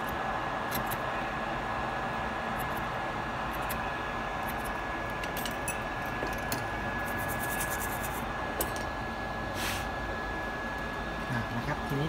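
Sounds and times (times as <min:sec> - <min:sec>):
thin steady whine: 0:00.0 - 0:12.0
metal blade scratching: 0:04.5 - 0:08.8.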